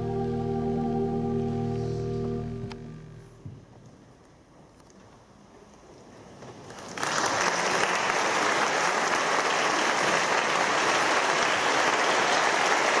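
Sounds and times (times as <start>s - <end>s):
audience applause: 6.7s - 13.0s.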